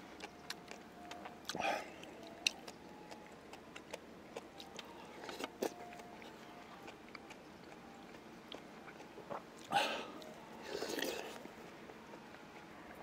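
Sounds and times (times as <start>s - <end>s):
person chewing: 0.2s - 11.5s.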